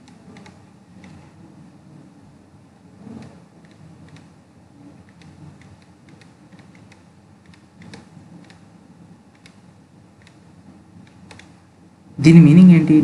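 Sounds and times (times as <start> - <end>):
faint low room hum: 0.0 - 13.0.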